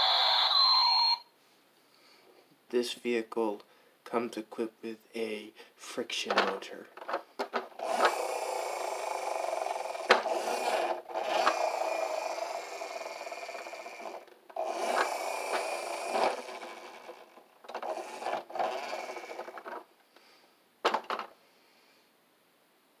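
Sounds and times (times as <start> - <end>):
toy friction motor whirring: 0.0 - 1.2, 7.7 - 19.8.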